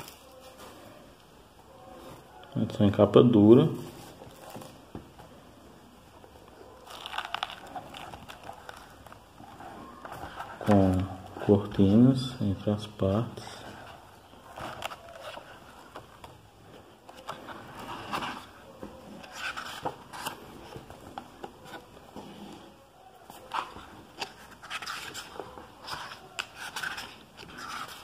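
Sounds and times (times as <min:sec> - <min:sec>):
book pages rustling: 0:00.0 - 0:01.0, 0:06.3 - 0:12.1, 0:13.6 - 0:28.0.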